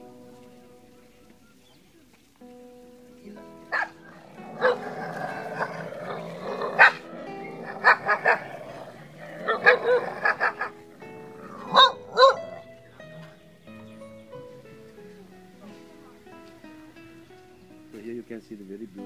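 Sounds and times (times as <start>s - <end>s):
background music with held notes: 0.0s - 19.0s
dogs barking: 3.6s - 13.1s.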